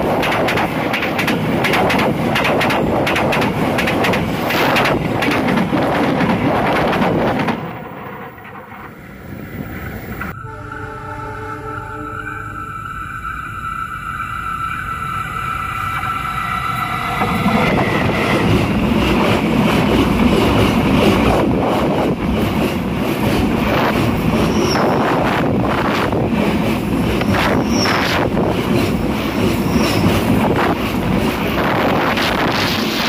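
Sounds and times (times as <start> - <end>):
wheels clattering on rails: 0.0 - 10.4
train rumbling overhead: 0.0 - 33.0
high squeals: 10.2 - 18.5, 27.2 - 28.3.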